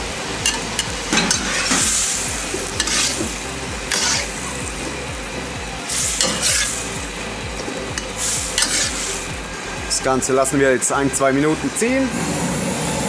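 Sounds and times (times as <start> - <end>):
steady sizzle: 0.0 - 13.0
metal spatula scraping wok: 0.4 - 5.0, 5.9 - 9.3.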